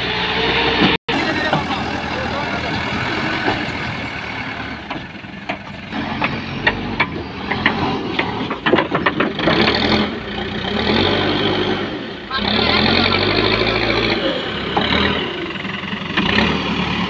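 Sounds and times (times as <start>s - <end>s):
diesel engine running: 0.0s - 17.0s
metallic clanks and knocks: 3.0s - 10.4s.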